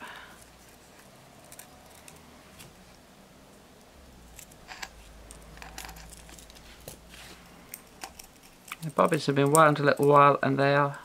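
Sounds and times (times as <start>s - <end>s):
bobbins clicking together: 7.7s - 11.0s.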